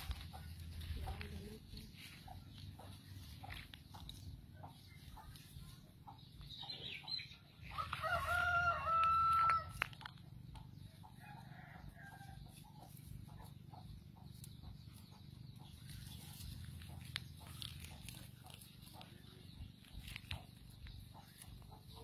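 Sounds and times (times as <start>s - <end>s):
rooster crowing: 7.8s - 9.8s
faint clicks and rustles: 12.4s - 22.0s.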